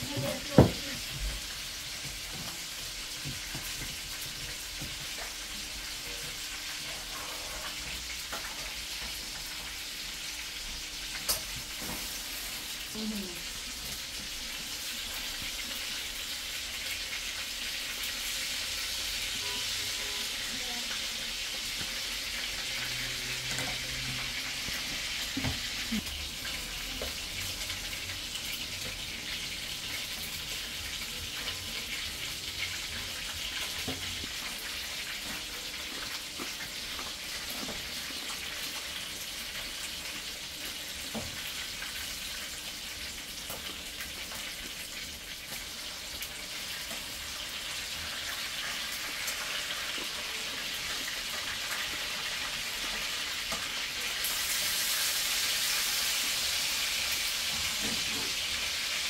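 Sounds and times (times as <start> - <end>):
chicken wings sizzling in oil: 0.0 - 59.0.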